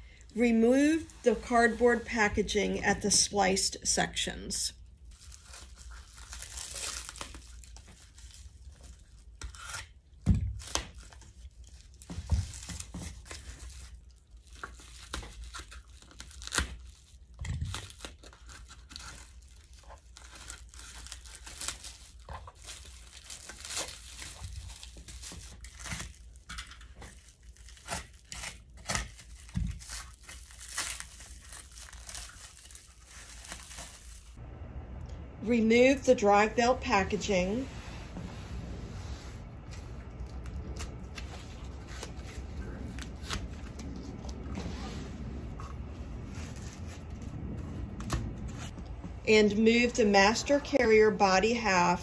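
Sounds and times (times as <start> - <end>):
packaging ripping and crinkling: 5.0 - 34.4, 39.7 - 44.5, 45.7 - 48.8.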